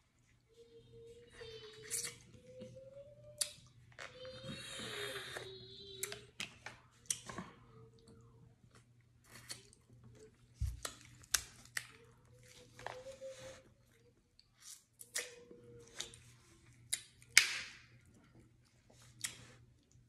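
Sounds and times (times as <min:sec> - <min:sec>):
mouth eating sounds: 0:01.8 - 0:02.6.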